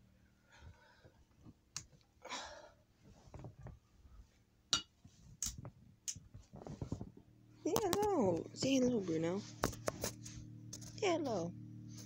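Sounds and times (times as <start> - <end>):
phone rustling against clothing: 6.3 - 11.2
sharp clicks and knocks: 7.7 - 8.8.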